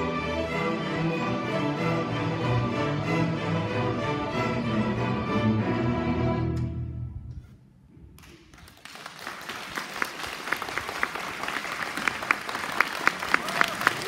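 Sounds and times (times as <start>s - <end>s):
audience applauding: 8.2s - 14.0s.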